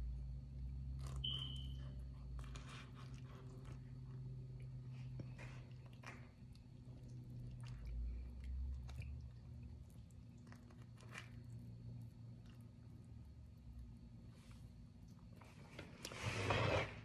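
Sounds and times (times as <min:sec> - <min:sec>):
low steady hum: 0:00.0 - 0:17.0
sandwich squishing and crackling: 0:00.6 - 0:13.9.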